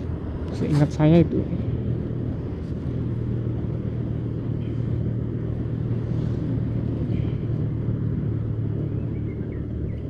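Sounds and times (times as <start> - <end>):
motorcycle engine running: 0.0 - 10.0
road and wind noise: 0.0 - 10.0.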